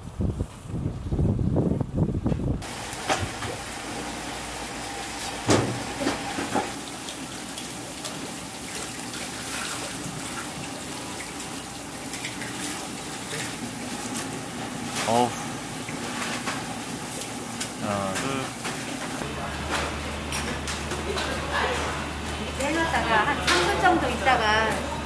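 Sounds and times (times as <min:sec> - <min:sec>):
water boiling hard: 0:02.6 - 0:20.8.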